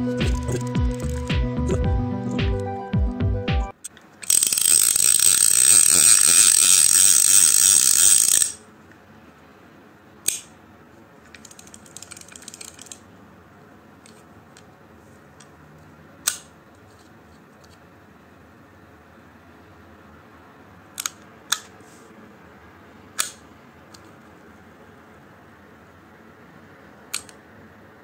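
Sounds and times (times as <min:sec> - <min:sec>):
fishing reel ratchet clicking: 0:04.2 - 0:08.6, 0:11.4 - 0:13.0.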